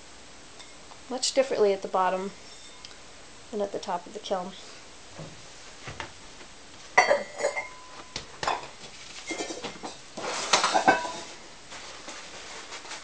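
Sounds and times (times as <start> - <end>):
ceramic shelves clattering: 7.0 - 7.9, 8.5 - 11.4.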